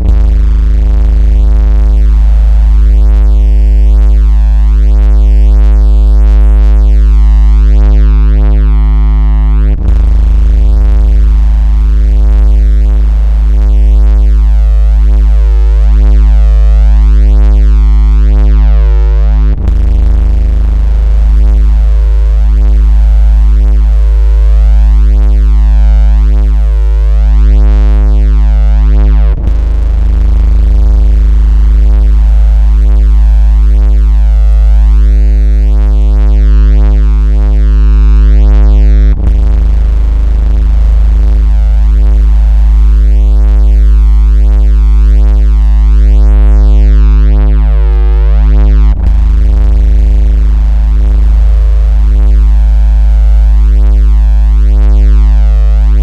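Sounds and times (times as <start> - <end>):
synthesized bass tone: 0.0 - 56.0.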